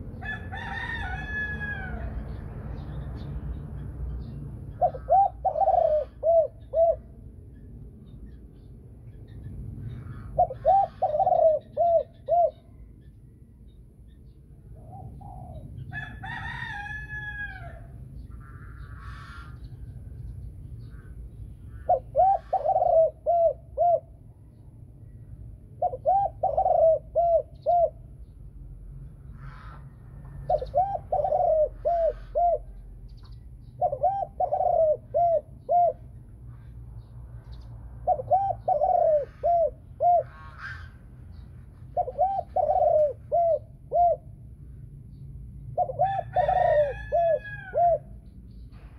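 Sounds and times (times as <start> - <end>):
dove cooing: 4.7 - 7.4, 9.9 - 13.0, 14.7 - 16.8, 21.7 - 24.3, 25.6 - 28.2, 29.4 - 36.3, 38.0 - 44.5, 45.7 - 48.2.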